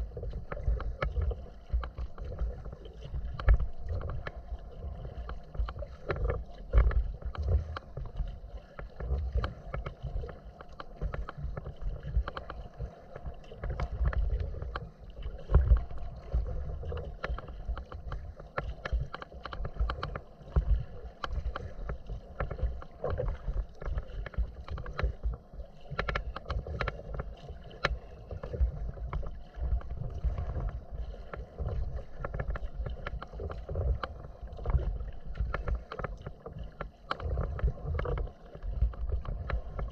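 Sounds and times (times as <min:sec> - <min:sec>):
wind rumbling on microphone: 0:00.0 - 0:10.4
water slapping against hull: 0:00.0 - 0:39.9.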